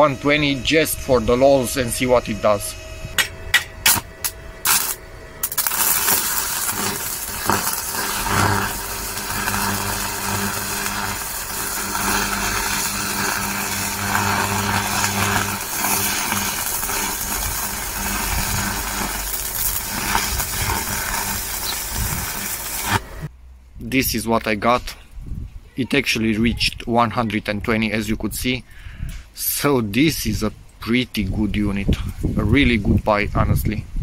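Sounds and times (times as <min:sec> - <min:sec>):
welding arc crackling and hissing: 0:00.0 - 0:23.3
welding electrode tapping: 0:03.1 - 0:23.3.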